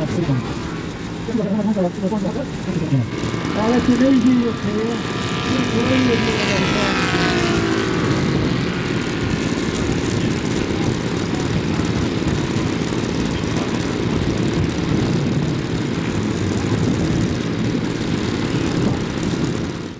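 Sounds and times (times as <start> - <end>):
model aircraft engine droning: 0.0 - 19.9.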